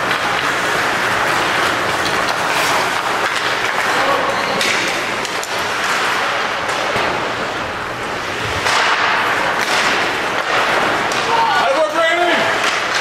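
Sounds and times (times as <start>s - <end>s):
hockey sticks and puck clacking: 0.0s - 7.6s, 8.2s - 13.0s
skate blades scraping ice: 0.1s - 7.2s.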